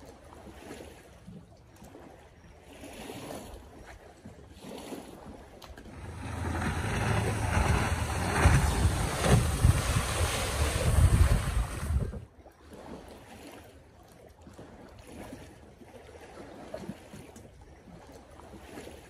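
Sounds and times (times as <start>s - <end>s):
faint lakeside ambience: 0.0s - 19.0s
moving water: 0.0s - 19.0s
wind buffeting microphone: 5.8s - 12.3s.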